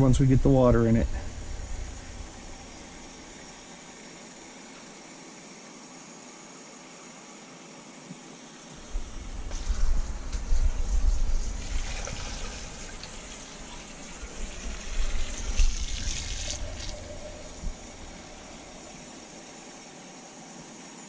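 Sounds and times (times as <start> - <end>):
kitchen tap running: 8.8 - 19.0
water pouring into pot: 10.3 - 19.1.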